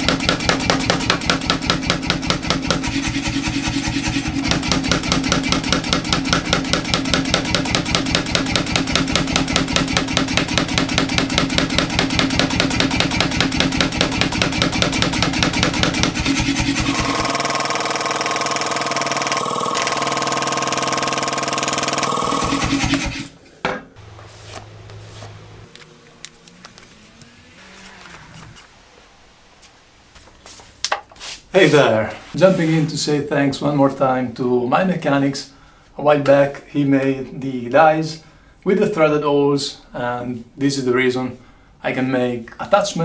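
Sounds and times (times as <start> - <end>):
power hammer striking hot steel: 0.0 - 23.2
steady machine hum: 0.0 - 30.2.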